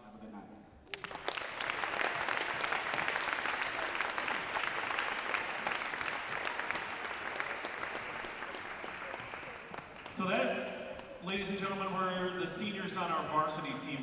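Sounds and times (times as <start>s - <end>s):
crowd applauding: 0.8s - 11.9s.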